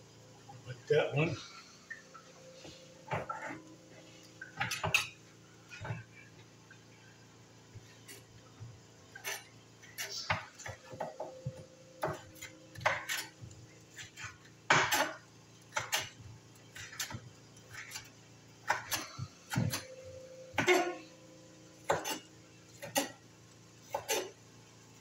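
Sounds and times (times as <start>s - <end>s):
kitchen utensils and dishes clinking: 3.1s - 6.1s, 9.1s - 15.2s, 18.7s - 21.2s, 21.9s - 23.2s, 23.9s - 24.4s.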